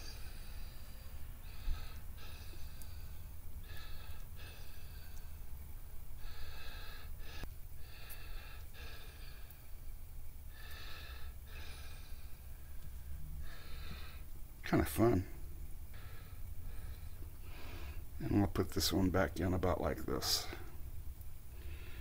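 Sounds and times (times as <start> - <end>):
man breathing through nose: 0.0 - 5.5, 6.2 - 9.8, 10.5 - 14.3, 15.9 - 18.1, 21.5 - 22.0
low hum: 0.0 - 19.3.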